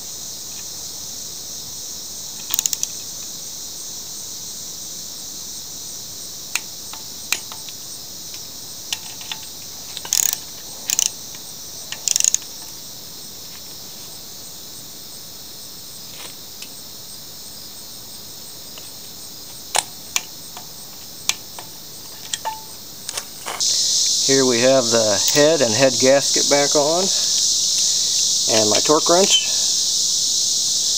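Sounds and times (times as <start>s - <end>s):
crickets chirping: 0.0s - 30.9s
socket ratchet clicking: 2.4s - 2.9s, 6.6s - 12.5s
torque wrench clicks: 2.4s - 2.9s, 6.6s - 12.6s.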